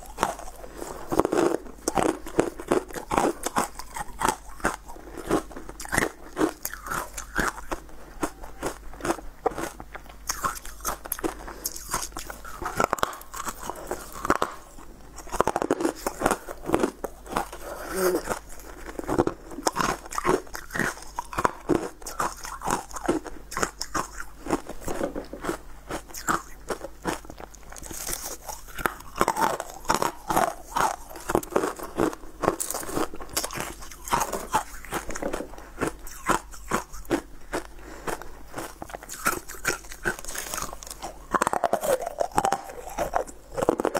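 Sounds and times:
ice crunched between teeth: 0:00.0 - 0:43.9.

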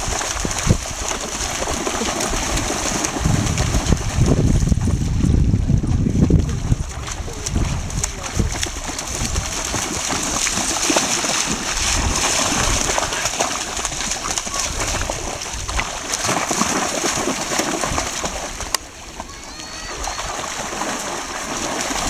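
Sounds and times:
dog splashing through shallow water: 0:00.0 - 0:22.0.

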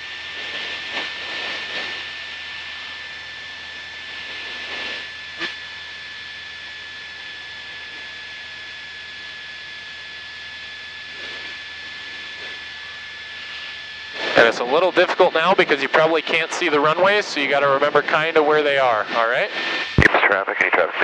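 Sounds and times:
airplane engine droning: 0:00.0 - 0:21.0
thin high whine: 0:13.4 - 0:21.0.

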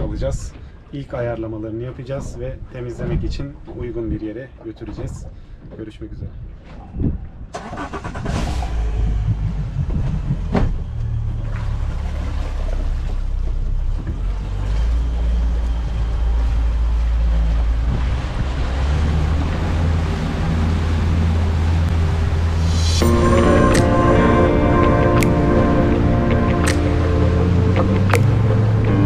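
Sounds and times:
boat engine droning: 0:07.9 - 0:29.0.

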